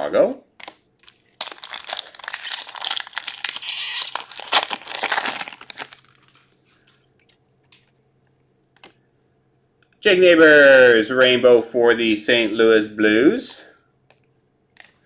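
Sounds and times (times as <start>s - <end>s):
foil wrapper tearing and crinkling: 1.0s - 6.5s.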